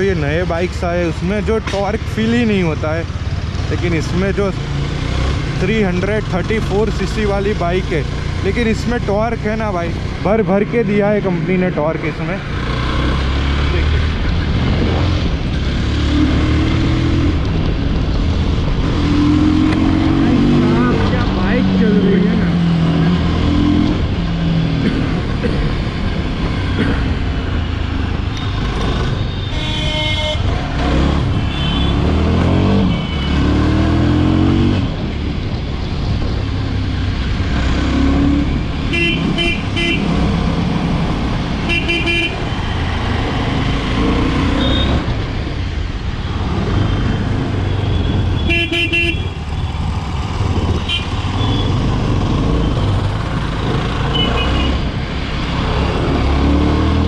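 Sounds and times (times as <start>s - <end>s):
motorcycle engine accelerating: 2.5s - 29.3s
vehicle horns honking: 29.3s - 32.2s, 32.8s - 33.6s, 38.9s - 40.2s, 41.6s - 42.5s, 44.4s - 45.1s, 47.7s - 49.5s, 50.8s - 51.8s, 54.1s - 54.8s.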